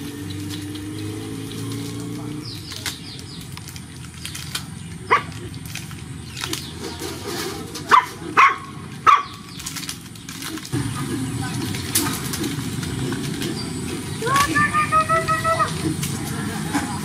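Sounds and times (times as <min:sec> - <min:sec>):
puppies yipping: 0:04.8 - 0:07.0, 0:07.8 - 0:09.7.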